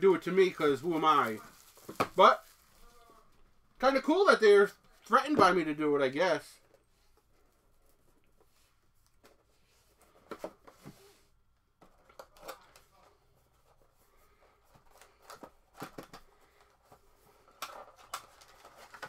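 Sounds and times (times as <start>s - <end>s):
card stock rustling: 0.3s - 3.0s, 11.8s - 19.0s.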